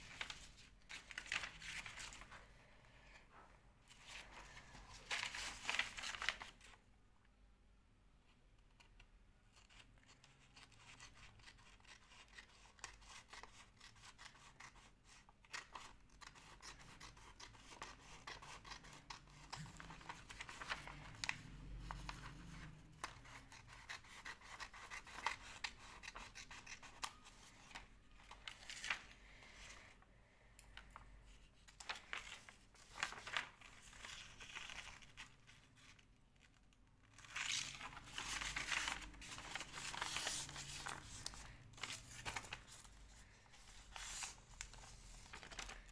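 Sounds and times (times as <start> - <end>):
paper rustling: 0.0 - 2.5, 3.9 - 6.8, 17.4 - 30.0, 30.8 - 45.9
scissors snipping paper: 8.8 - 21.4, 22.9 - 27.5.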